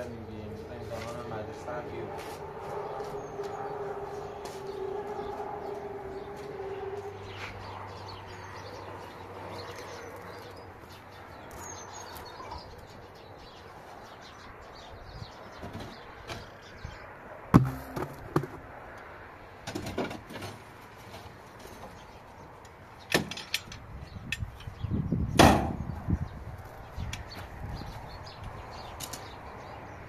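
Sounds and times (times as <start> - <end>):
objects knocking in car boot: 17.6 - 18.7.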